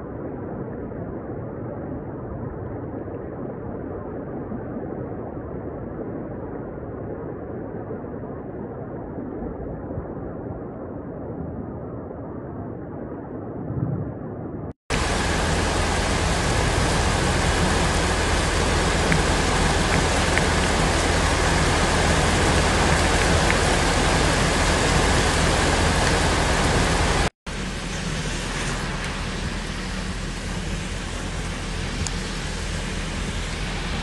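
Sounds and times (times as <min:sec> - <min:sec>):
floodwater running: 0:14.9 - 0:34.0
heavy rain: 0:14.9 - 0:34.0.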